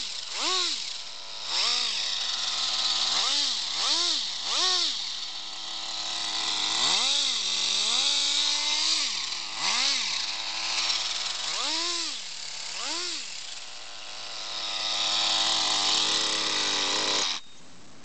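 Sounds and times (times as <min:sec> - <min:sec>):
nitro engine revving: 0:00.0 - 0:00.8, 0:01.4 - 0:02.0, 0:03.0 - 0:05.0, 0:06.3 - 0:13.3.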